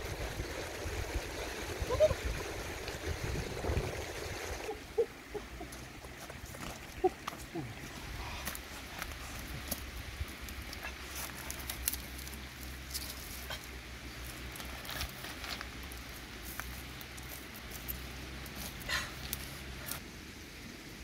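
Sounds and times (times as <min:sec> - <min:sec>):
twig fire crackling: 0:05.7 - 0:20.2.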